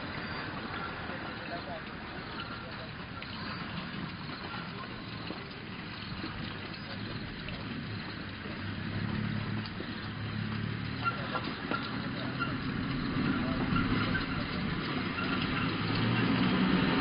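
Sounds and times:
vehicle engine humming: 0.0 - 17.0.

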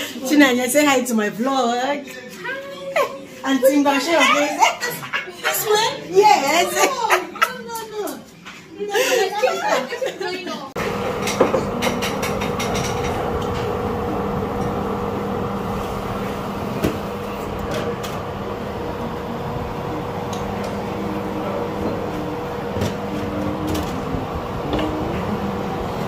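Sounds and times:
kitchen fan humming: 10.8 - 26.0.

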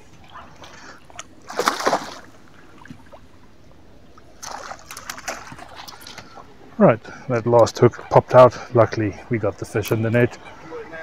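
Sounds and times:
fish splashing in water: 1.1 - 3.2, 4.3 - 6.5.

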